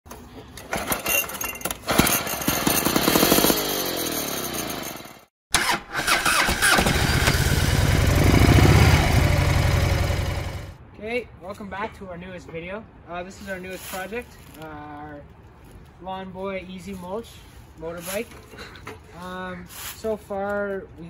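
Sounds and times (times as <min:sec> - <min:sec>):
mower engine pull-started: 0:05.5 - 0:10.6.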